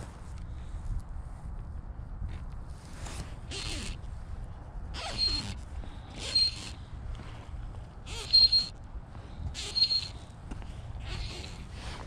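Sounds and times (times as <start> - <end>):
wind rumble on microphone: 0.0 - 12.0
fly line zipping through rod guides: 5.0 - 6.8, 8.1 - 8.7.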